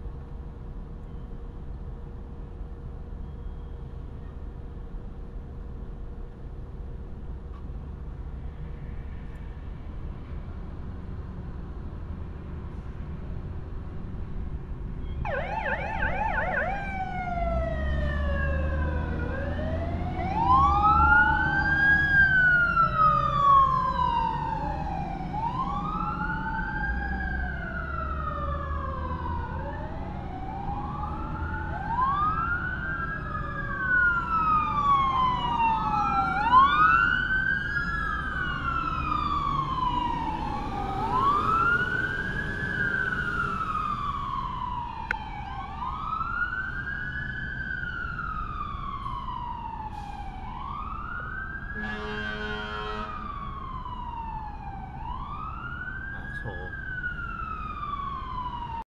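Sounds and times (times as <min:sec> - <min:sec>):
truck engines rumbling: 0:00.0 - 0:58.8
siren yelp: 0:15.2 - 0:58.8
fire truck sirens wailing: 0:15.2 - 0:58.9.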